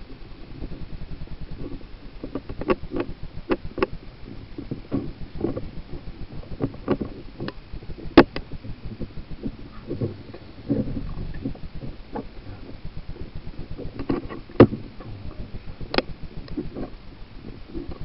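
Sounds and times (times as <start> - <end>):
steady low rumble: 0.0 - 18.0
scraping clicks on microphone: 13.9 - 15.1.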